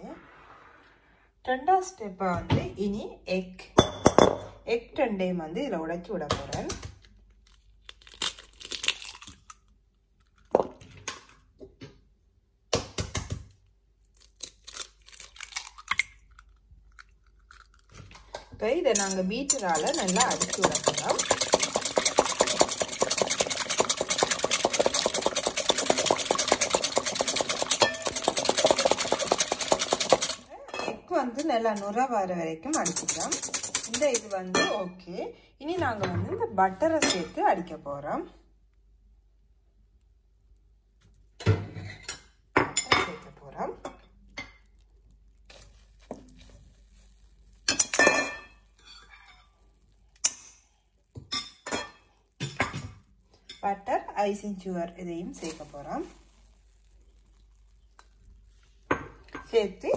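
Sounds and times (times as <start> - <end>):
whisk clicking against metal bowl: 18.9 - 30.5, 32.7 - 34.4.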